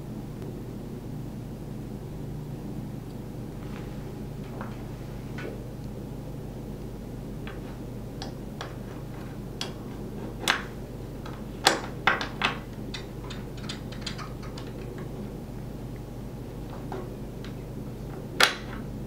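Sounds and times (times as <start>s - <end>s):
metal clicks and taps: 10.4s - 15.1s.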